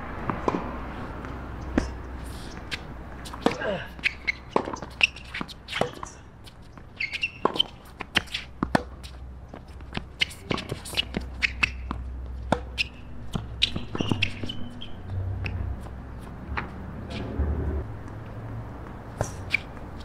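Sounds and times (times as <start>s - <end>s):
tennis balls struck by rackets: 0.2s - 14.7s, 18.8s - 20.0s
shoes squeaking on court: 0.3s - 20.0s.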